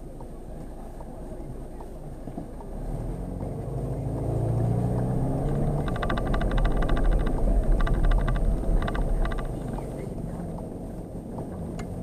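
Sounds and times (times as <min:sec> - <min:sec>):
diesel car engine accelerating: 0:00.0 - 0:12.0
low road rumble: 0:00.0 - 0:12.0
fast even ticking: 0:05.5 - 0:10.0.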